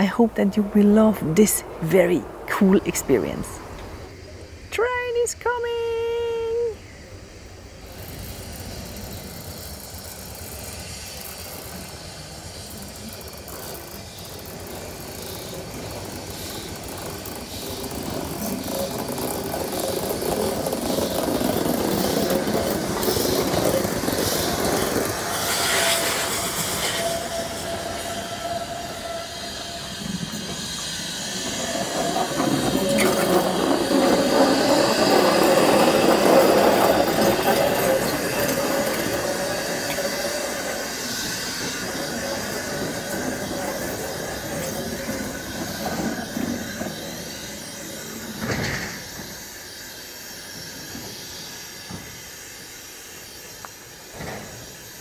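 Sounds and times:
steam locomotive passing: 0.0s - 55.0s
steam hissing: 1.6s - 55.0s
thin squeal: 23.0s - 51.7s.

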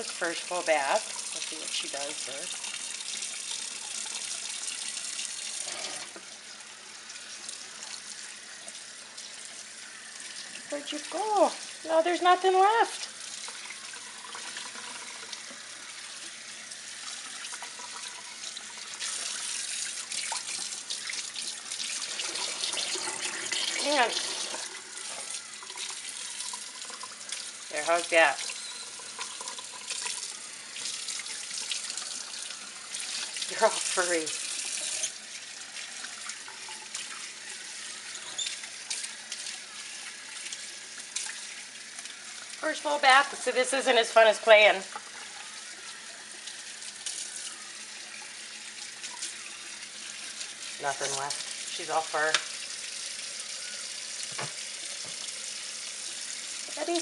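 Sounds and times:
water splashing into sink: 7.0s - 53.5s
water spraying from hose: 7.3s - 45.6s.

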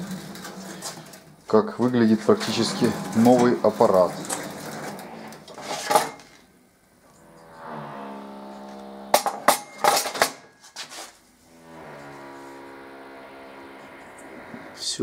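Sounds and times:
held musical tones: 1.8s - 5.5s.

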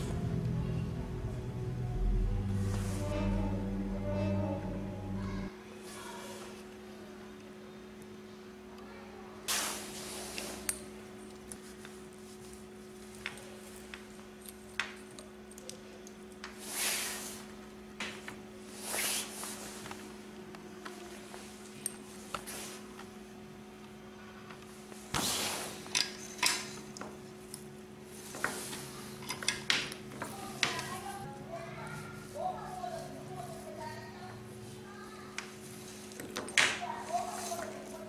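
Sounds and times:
steady low hum: 0.0s - 38.0s
wire handling clicks and rustles: 10.3s - 16.6s, 25.8s - 31.1s, 35.3s - 38.0s.

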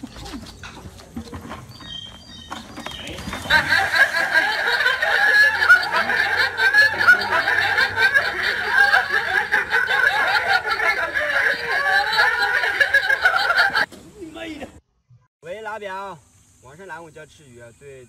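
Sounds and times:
people laughing hard: 3.1s - 13.9s.

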